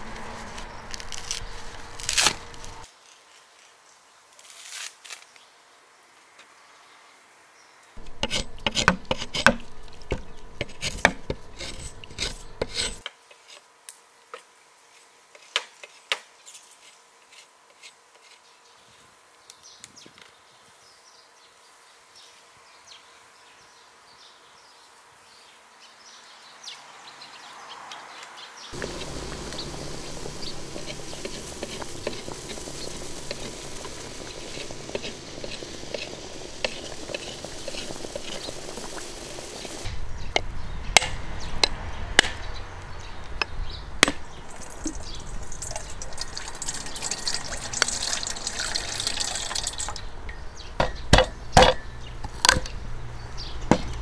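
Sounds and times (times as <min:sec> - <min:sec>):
steady hiss: 0:00.0 - 0:03.9, 0:28.8 - 0:40.2.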